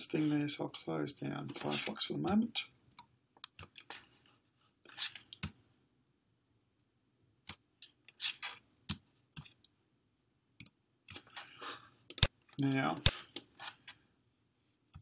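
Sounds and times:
computer mouse clicks: 0:03.0 - 0:04.0, 0:12.1 - 0:12.3.

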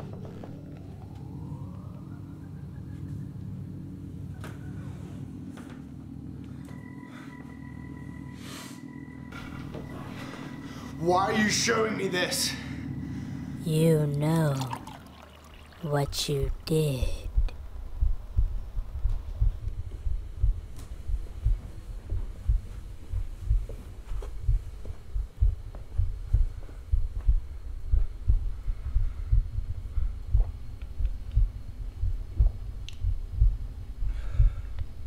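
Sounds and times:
heartbeat: 0:00.0 - 0:04.7, 0:14.7 - 0:35.0.

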